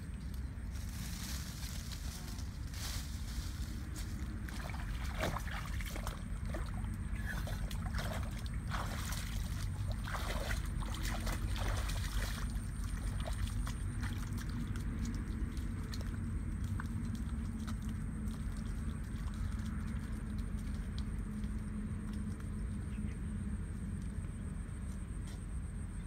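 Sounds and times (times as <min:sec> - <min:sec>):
wind rumbling on microphone: 0:00.0 - 0:26.0
rustling leafy branches: 0:00.6 - 0:04.5
feet splashing in muddy water: 0:00.7 - 0:23.0.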